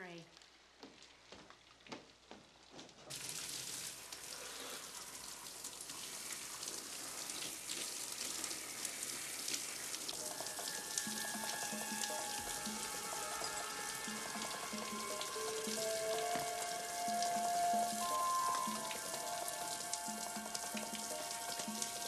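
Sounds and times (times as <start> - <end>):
shower spray hissing on tiles: 3.1 - 22.0
music tones: 10.2 - 22.0.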